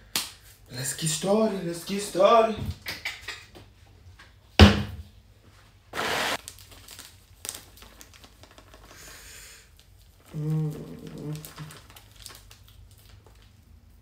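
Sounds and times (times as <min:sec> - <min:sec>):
plastic bag rustling: 0:06.0 - 0:14.0.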